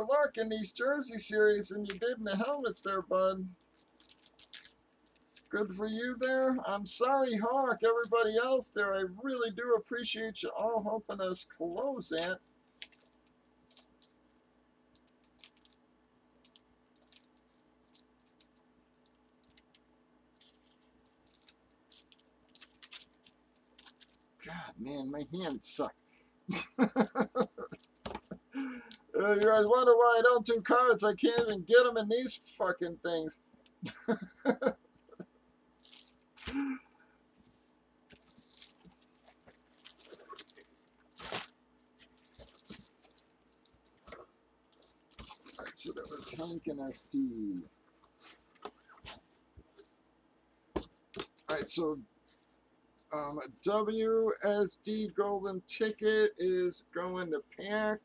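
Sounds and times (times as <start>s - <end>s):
low electrical hum: 0.0s - 58.0s
cards and plastic holders rustling: 12.1s - 14.3s, 20.4s - 24.2s, 38.1s - 47.0s, 48.0s - 50.0s.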